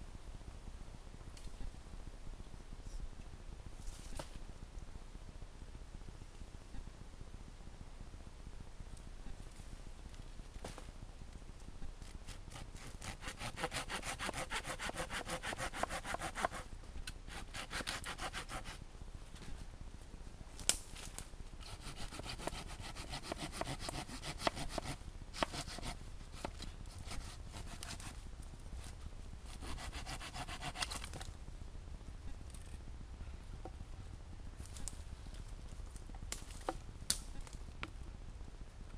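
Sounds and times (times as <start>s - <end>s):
hand saw cutting wood: 12.5s - 16.7s, 17.3s - 18.8s, 21.7s - 28.2s, 29.6s - 31.0s.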